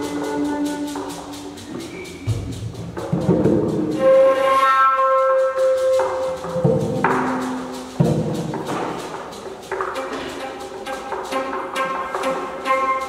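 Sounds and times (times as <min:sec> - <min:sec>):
flute: 0:00.0 - 0:02.7, 0:03.9 - 0:07.9, 0:10.0 - 0:13.0
hand drums: 0:00.0 - 0:13.0.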